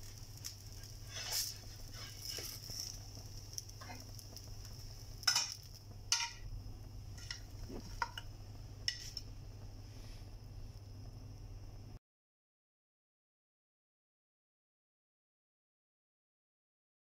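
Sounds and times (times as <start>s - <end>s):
light sizzling: 0.0s - 12.0s
steady low hum: 0.0s - 12.0s
spatula scraping frying pan: 0.6s - 4.3s, 5.2s - 6.4s, 7.1s - 8.2s, 8.9s - 9.3s.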